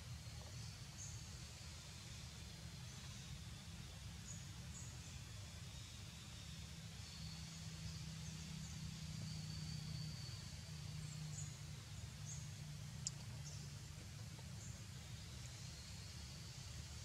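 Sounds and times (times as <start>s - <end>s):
steady low hum: 0.0s - 17.0s
sharp tick: 13.0s - 13.3s.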